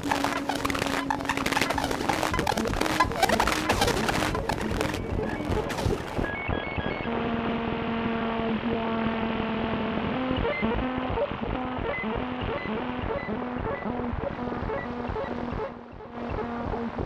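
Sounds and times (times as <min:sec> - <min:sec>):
electronic synthesizer music: 0:00.0 - 0:06.3.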